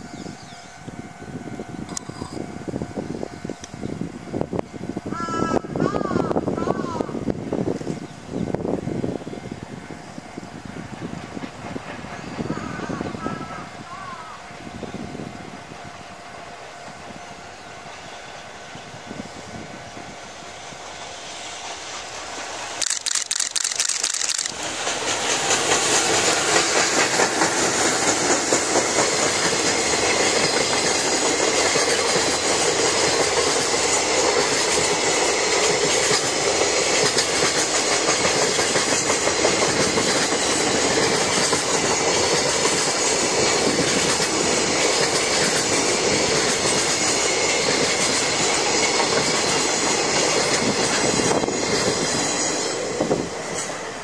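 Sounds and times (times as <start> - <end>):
freight train approaching: 0.0 - 54.0
wheels clacking over rail joints: 22.4 - 52.9
sharp clicks: 22.8 - 24.6.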